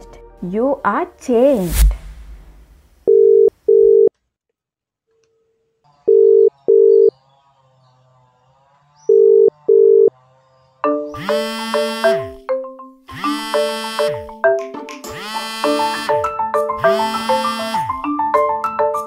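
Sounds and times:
telephone ringback tone: 3.1s - 4.1s, 6.1s - 7.1s, 9.2s - 10.1s, 11.2s - 12.4s, 15.3s - 16.2s, 16.8s - 18.0s.

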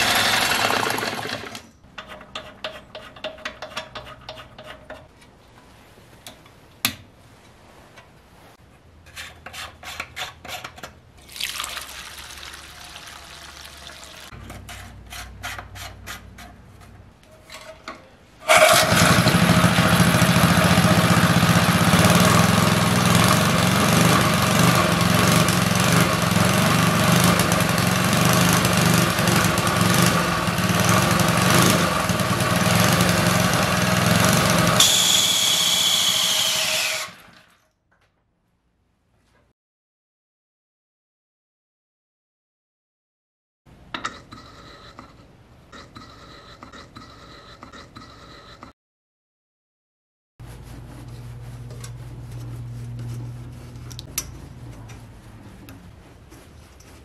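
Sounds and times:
small engine running loud: 0.0s - 1.6s, 18.5s - 34.9s
fuel pouring through funnel: 11.2s - 14.3s.

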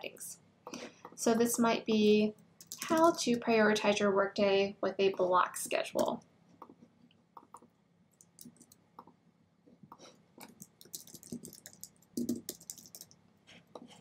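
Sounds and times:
computer keyboard typing: 2.6s - 3.4s, 7.4s - 9.1s, 10.4s - 13.2s.

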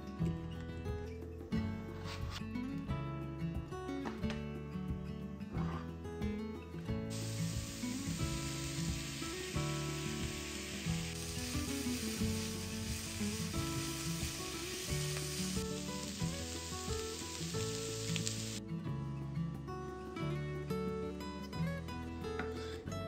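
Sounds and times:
background music: 0.0s - 23.0s
food sizzling in frying pan: 7.1s - 18.6s.

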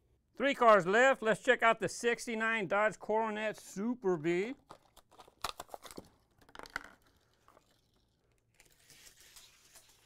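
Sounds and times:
plastic blister pack crinkling: 4.6s - 10.0s
cardboard tearing: 8.6s - 10.0s.

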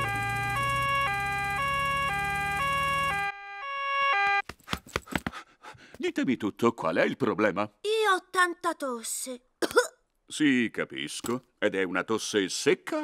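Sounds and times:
cartoon two-tone siren: 0.0s - 4.4s
quick taps: 4.4s - 5.4s.

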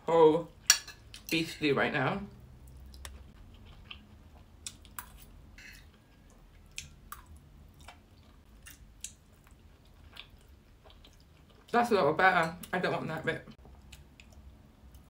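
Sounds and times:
person chewing: 2.6s - 11.7s, 13.6s - 15.0s.

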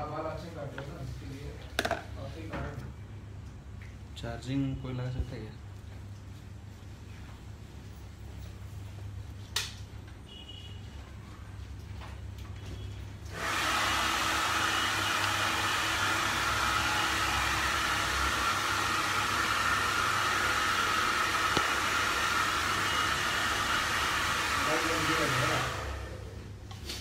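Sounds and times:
hair dryer blowing: 13.3s - 26.5s.

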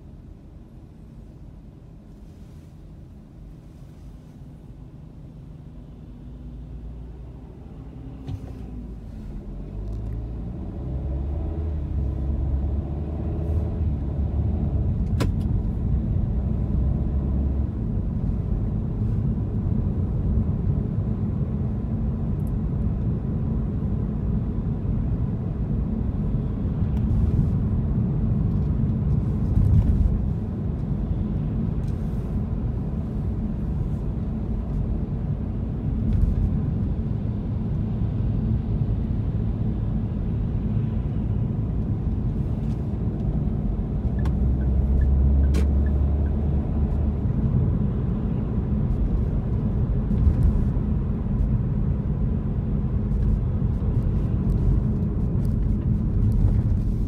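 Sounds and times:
road rumble inside car: 0.0s - 57.0s
car engine accelerating: 6.5s - 18.3s.

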